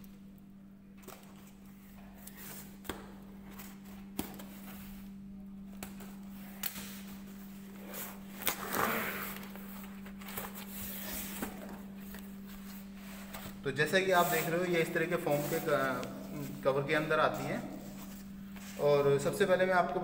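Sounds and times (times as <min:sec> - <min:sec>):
steady low hum: 0:00.0 - 0:20.0
cardboard scraping rustle: 0:07.8 - 0:18.9.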